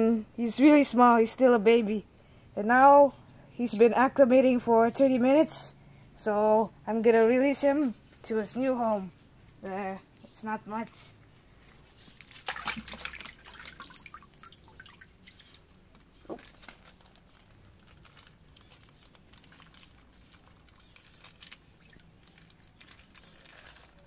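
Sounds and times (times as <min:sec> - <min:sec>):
water splashing and sloshing: 0:12.0 - 0:15.8.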